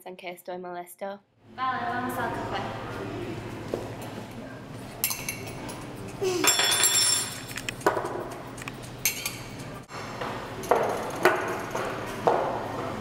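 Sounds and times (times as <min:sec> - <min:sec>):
spoons clinking against mugs and glasses: 0:05.0 - 0:07.6, 0:09.0 - 0:09.6.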